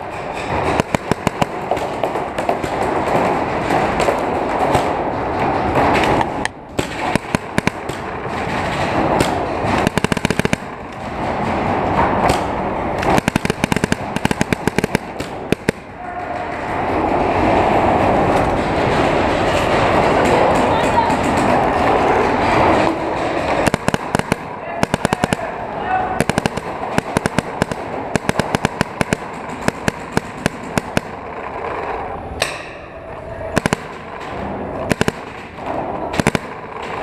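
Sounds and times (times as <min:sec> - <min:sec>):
constant background noise: 0:00.0 - 0:37.0.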